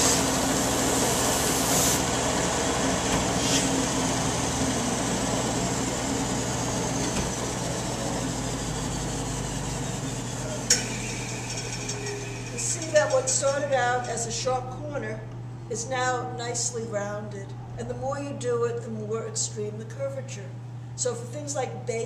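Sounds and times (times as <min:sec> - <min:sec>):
belt sander running: 0:00.0 - 0:14.4.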